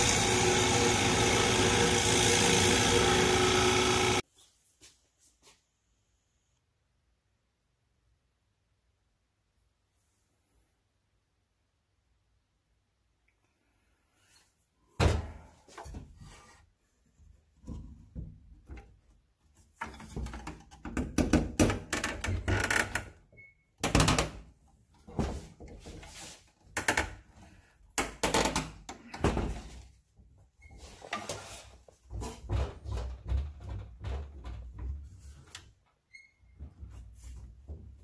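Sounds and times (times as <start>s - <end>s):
wooden knocks and thuds: 32.1s - 35.2s.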